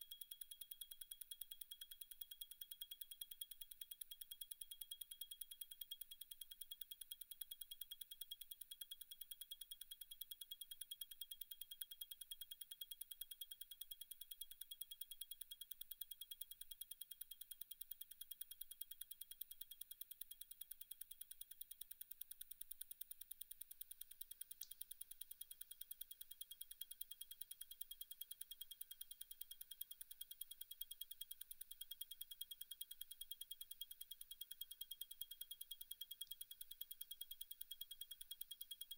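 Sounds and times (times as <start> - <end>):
watch movement ticking rapidly: 15.2 - 38.9.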